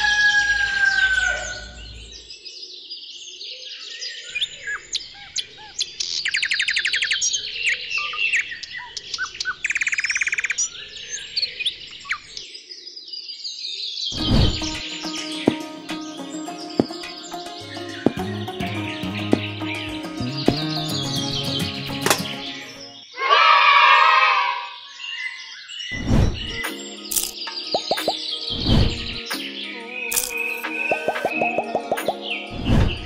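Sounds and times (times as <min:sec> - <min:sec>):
rooster crowing: 0:00.0 - 0:01.8
songbirds chirping and trilling: 0:00.0 - 0:23.3, 0:24.0 - 0:33.0
music: 0:14.2 - 0:23.0, 0:26.6 - 0:33.0.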